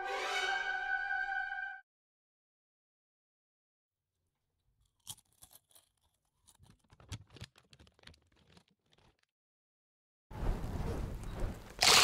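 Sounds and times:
tortilla chips crunching: 0:04.8 - 0:09.2.

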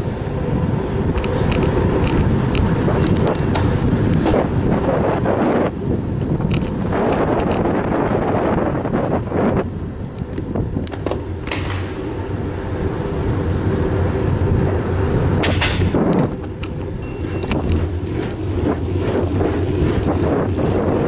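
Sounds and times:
bicycle clacking over bumps: 0:00.0 - 0:21.0
bicycle tyre rumble and rattle: 0:00.0 - 0:21.0
wind on microphone: 0:00.0 - 0:21.0.

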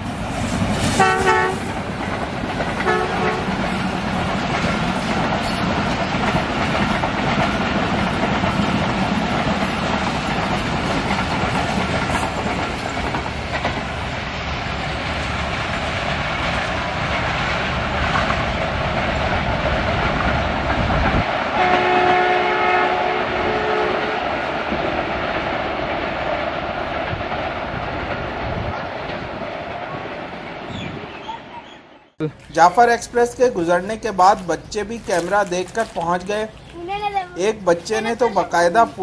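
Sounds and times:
train wheels clattering over rail joints: 0:00.3 - 0:21.9
train horn: 0:00.9 - 0:01.7, 0:02.8 - 0:03.6, 0:21.6 - 0:24.4.

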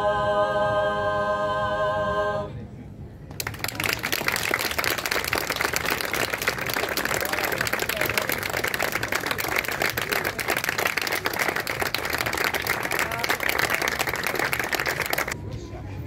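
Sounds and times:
audience clapping: 0:03.3 - 0:15.4
voices: 0:06.1 - 0:16.0.

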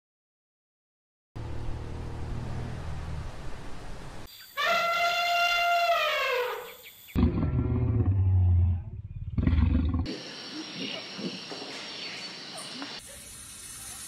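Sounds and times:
elephant trumpeting: 0:04.6 - 0:06.7
lion roaring: 0:07.2 - 0:10.1.

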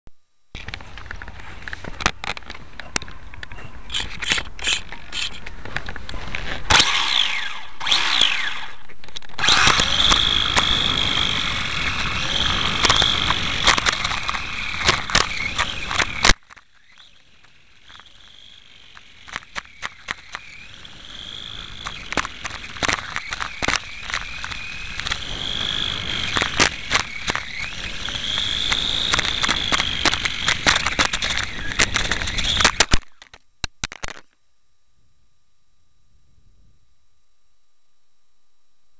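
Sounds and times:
toy motorbike motor whine: 0:03.9 - 0:05.6, 0:06.4 - 0:33.4.

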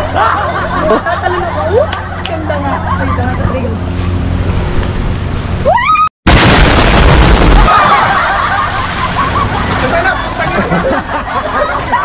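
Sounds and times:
explosion blast with deep rumble: 0:06.3 - 0:09.0.

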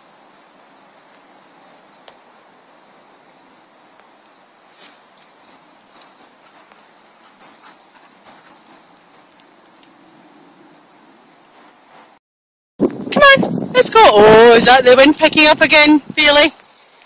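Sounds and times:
rustling of dead leaves: 0:00.0 - 0:11.6, 0:16.4 - 0:17.0.

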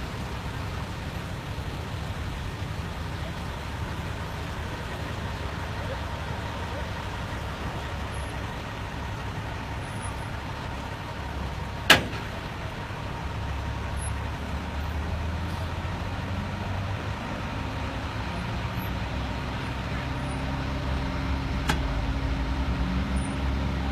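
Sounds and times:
truck engine and tyres rumbling: 0:00.0 - 0:23.9
sharp knock: 0:11.9 - 0:12.4.

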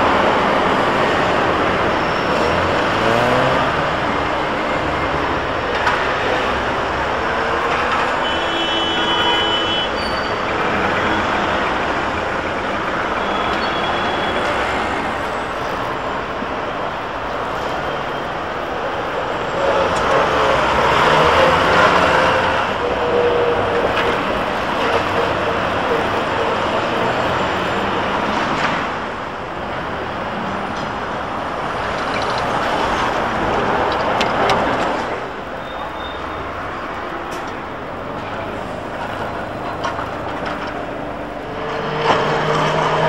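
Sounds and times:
street traffic passing: 0:00.0 - 0:43.0
bus passing close by: 0:09.2 - 0:43.0.

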